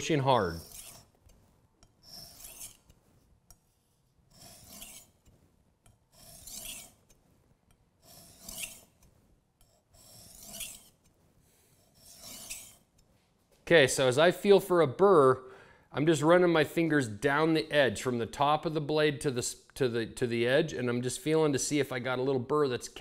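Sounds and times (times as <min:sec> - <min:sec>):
knife scraping on whetstone: 0:00.0 - 0:13.2.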